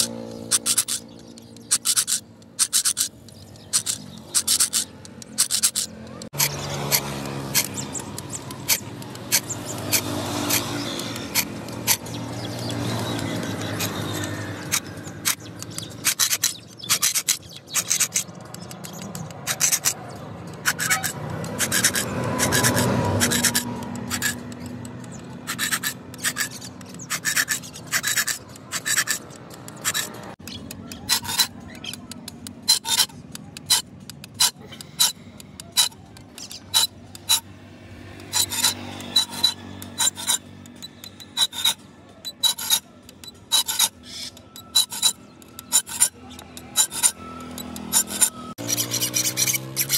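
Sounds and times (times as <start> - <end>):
file rasping on steel blade: 0.0 - 18.4, 19.0 - 20.0, 20.6 - 37.5, 38.1 - 49.9.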